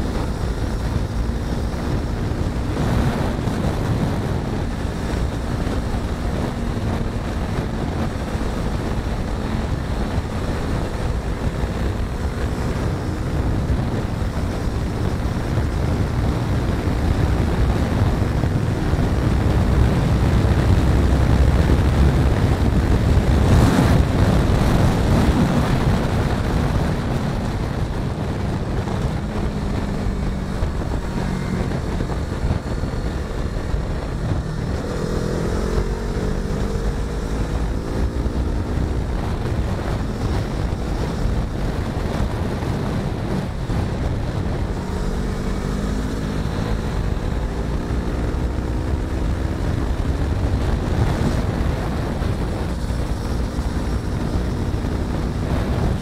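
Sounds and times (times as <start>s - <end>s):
motorcycle engine at road speed: 0.0s - 56.0s
wind rushing over microphone: 0.0s - 56.0s.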